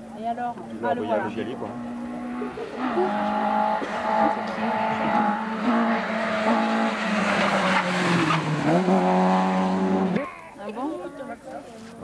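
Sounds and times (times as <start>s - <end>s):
rally car engine at high revs: 1.3s - 10.2s.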